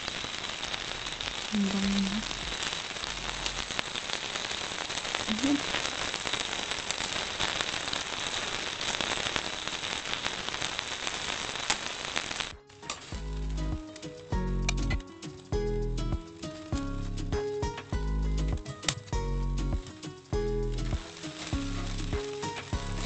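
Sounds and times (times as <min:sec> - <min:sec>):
fish sizzling on a grill: 0:00.0 - 0:23.0
sharp crackling pops: 0:00.0 - 0:23.0
background music: 0:12.6 - 0:23.0.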